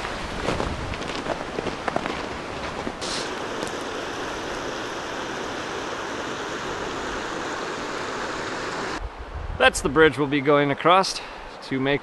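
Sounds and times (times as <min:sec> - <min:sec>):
river water rushing over rapids: 0:00.0 - 0:09.0.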